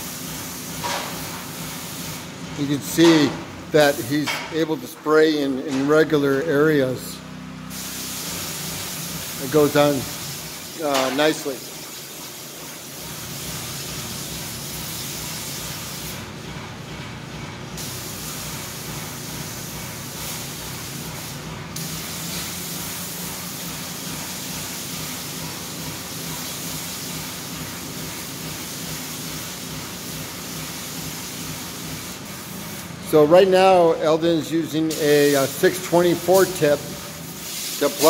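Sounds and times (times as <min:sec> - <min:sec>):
spray gun hissing: 0:00.0 - 0:02.4, 0:07.7 - 0:16.2, 0:17.8 - 0:33.0, 0:34.9 - 0:38.0.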